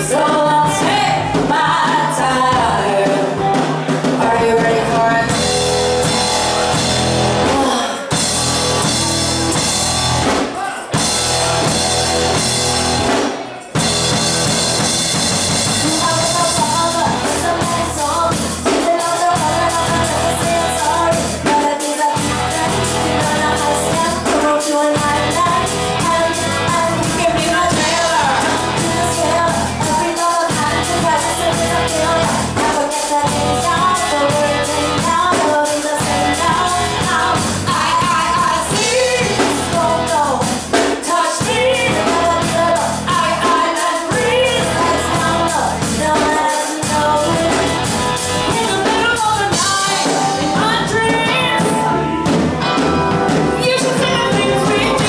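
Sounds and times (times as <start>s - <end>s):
drum kit: 0.0s - 55.0s
rock band playing: 0.0s - 55.0s
person singing: 15.7s - 55.0s.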